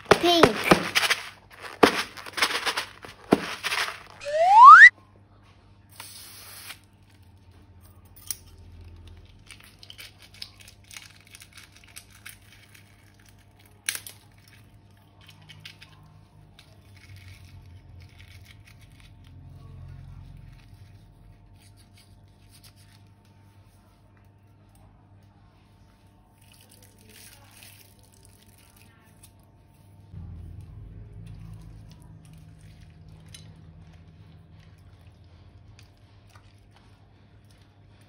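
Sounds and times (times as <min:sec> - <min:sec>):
thin plastic crinkling: 0:00.0 - 0:04.2, 0:09.2 - 0:15.8.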